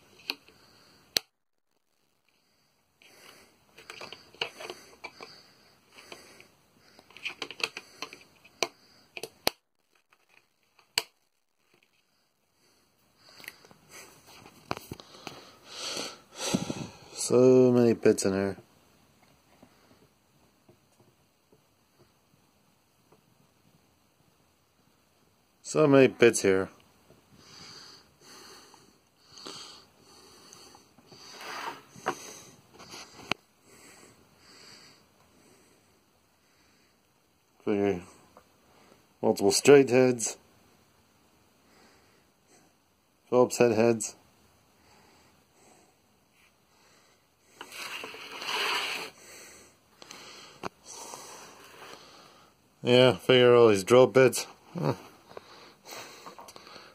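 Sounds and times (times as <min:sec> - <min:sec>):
person breathing through nose: 0:15.0 - 0:17.2, 0:27.4 - 0:37.0, 0:49.0 - 0:52.6, 0:55.3 - 0:56.9.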